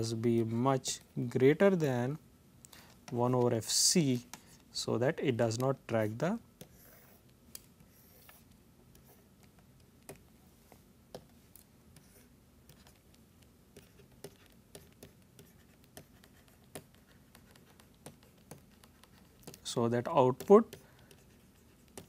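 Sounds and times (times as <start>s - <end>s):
low room hum: 0.0s - 22.0s
stylus tapping on pen tablet: 11.1s - 11.4s, 12.6s - 22.0s.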